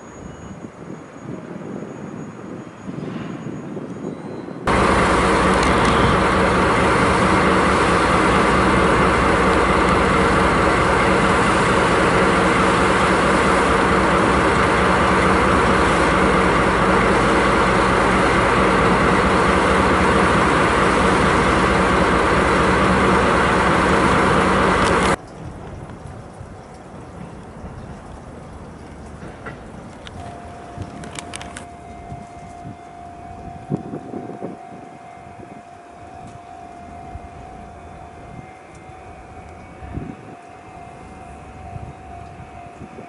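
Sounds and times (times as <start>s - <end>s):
locomotive diesel engines droning: 0.0s - 43.0s.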